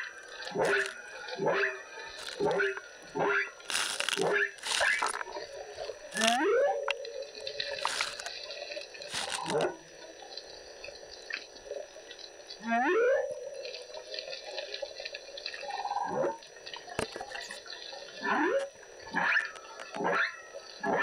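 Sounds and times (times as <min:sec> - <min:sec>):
whale calls underwater: 0:00.0 - 0:08.3, 0:12.6 - 0:14.1, 0:15.6 - 0:16.4, 0:17.2 - 0:21.0.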